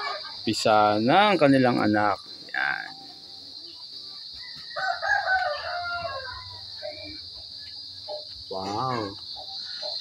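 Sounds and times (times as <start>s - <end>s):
crickets droning: 0.0s - 10.0s
rooster crowing: 4.2s - 6.8s.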